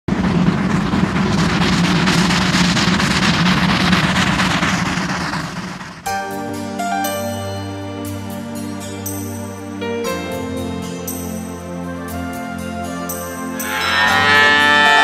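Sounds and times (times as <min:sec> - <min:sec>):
steam train rumbling and rattling: 0:00.0 - 0:15.0
music with clear notes: 0:06.1 - 0:15.0.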